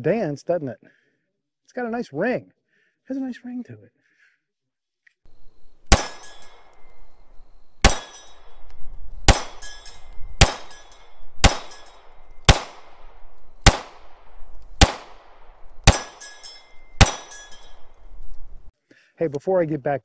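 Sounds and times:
steel target ringing: 0:05.4 - 0:18.0
pistol shots: 0:05.8 - 0:06.9, 0:07.8 - 0:16.4, 0:17.0 - 0:17.9.

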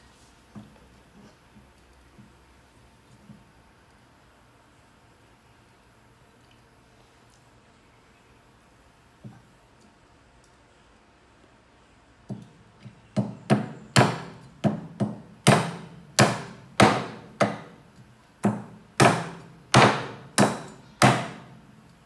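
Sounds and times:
cleaver chopping on wooden block: 0:13.2 - 0:17.7, 0:18.4 - 0:21.4.

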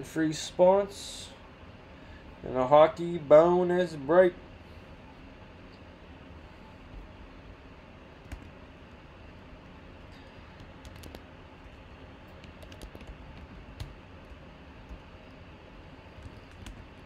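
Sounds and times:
faint low hum: 0:00.0 - 0:17.0
computer keyboard typing: 0:08.2 - 0:08.6, 0:10.6 - 0:15.0, 0:16.1 - 0:17.0.

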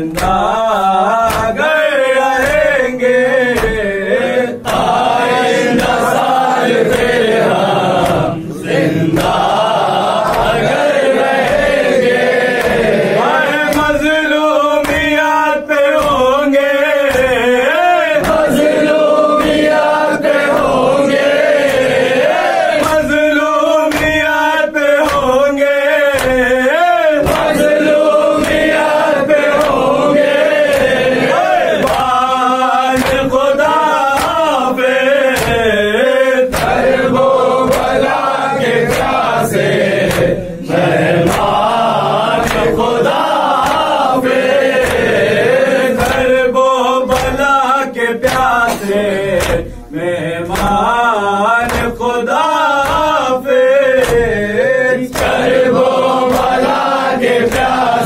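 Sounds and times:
chest slaps: 0:00.0 - 0:00.5, 0:01.3 - 0:01.6, 0:02.4 - 0:02.8, 0:08.0 - 0:09.6, 0:10.2 - 0:13.0, 0:13.7 - 0:14.2, 0:14.8 - 0:15.3, 0:20.4 - 0:23.2, 0:23.9 - 0:24.3, 0:25.0 - 0:25.4, 0:27.2 - 0:27.8, 0:28.4 - 0:30.0, 0:30.6 - 0:32.2, 0:33.0 - 0:34.6, 0:35.2 - 0:35.8, 0:36.5 - 0:38.2, 0:38.8 - 0:39.3, 0:40.0 - 0:40.5, 0:41.1 - 0:41.7, 0:42.4 - 0:45.2, 0:45.9 - 0:46.4, 0:47.1 - 0:47.5, 0:48.2 - 0:49.8, 0:51.6 - 0:52.0, 0:54.0 - 0:54.5, 0:55.1 - 0:57.9
men chanting in unison: 0:00.0 - 0:58.0.

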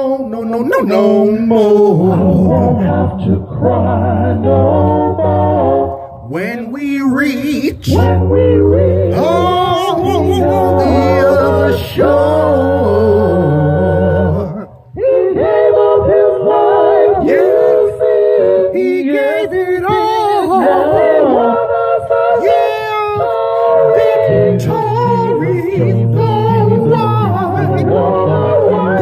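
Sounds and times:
man singing gospel harmonies: 0:00.0 - 0:29.0
low bass voice part: 0:06.3 - 0:14.9.

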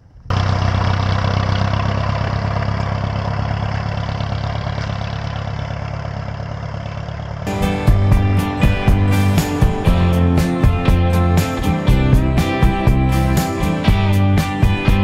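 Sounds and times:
pickup truck engine running: 0:00.0 - 0:15.0
music: 0:07.5 - 0:15.0.

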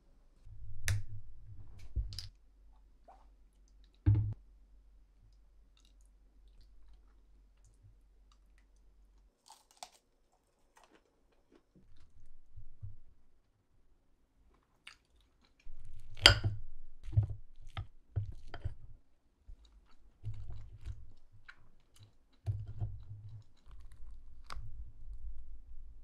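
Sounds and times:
person chewing crunchy food: 0:09.3 - 0:12.1.

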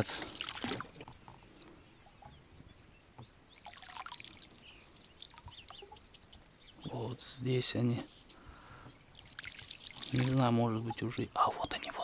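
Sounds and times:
water splashing and trickling: 0:00.0 - 0:02.3, 0:03.1 - 0:06.1, 0:09.1 - 0:11.3
small birds chirping: 0:00.0 - 0:12.0.

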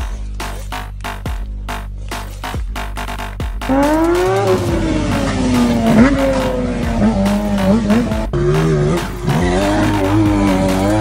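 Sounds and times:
motorcycle engine revving: 0:03.0 - 0:11.0.

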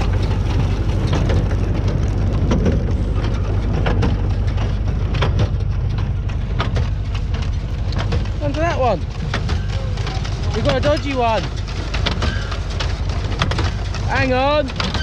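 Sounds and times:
baler clacks: 0:00.0 - 0:15.0
tractor engine drone: 0:00.0 - 0:15.0.

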